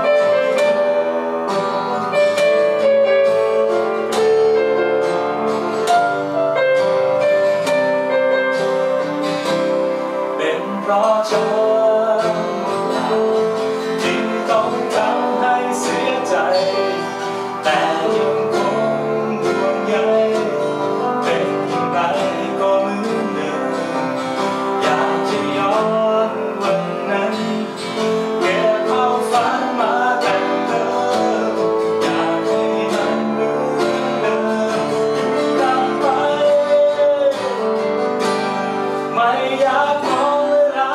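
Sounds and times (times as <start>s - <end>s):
acoustic guitar strumming: 0.0s - 40.9s
keyboard accompaniment: 0.0s - 40.9s
man singing: 10.1s - 40.9s.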